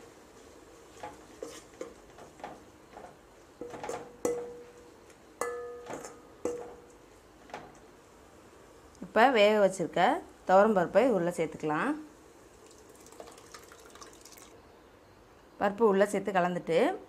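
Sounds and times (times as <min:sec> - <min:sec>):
metal spoon knocking in pot: 0:05.4 - 0:06.8.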